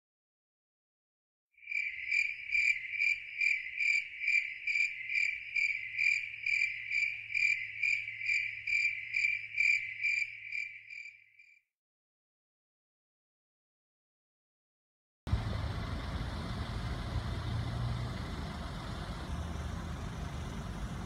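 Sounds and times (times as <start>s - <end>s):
cricket chirping: 1.6s - 11.6s.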